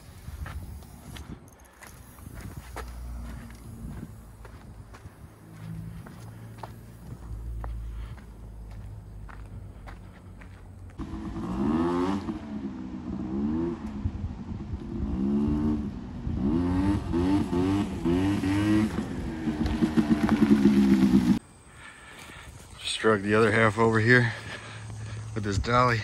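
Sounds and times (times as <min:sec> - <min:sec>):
scooter engine revving: 0:02.0 - 0:08.7, 0:11.0 - 0:13.9, 0:15.0 - 0:21.4.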